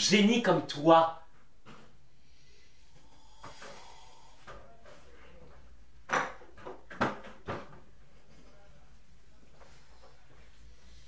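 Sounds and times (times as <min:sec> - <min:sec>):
knocks and clunks on a desk: 0:06.1 - 0:07.9.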